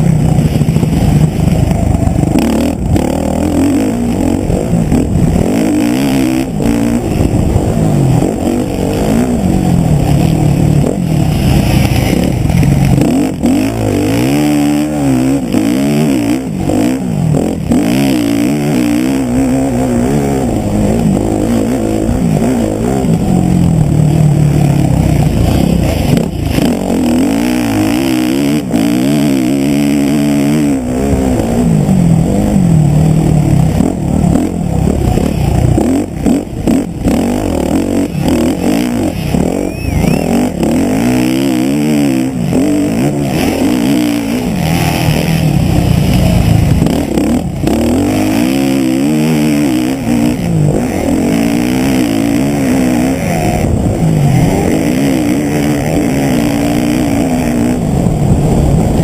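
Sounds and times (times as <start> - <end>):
wind rush: 0.0 - 3.6, 4.2 - 15.1, 42.9 - 48.7, 53.3 - 59.0
motocross bike engine revving: 0.0 - 59.0
track noise: 0.0 - 59.0.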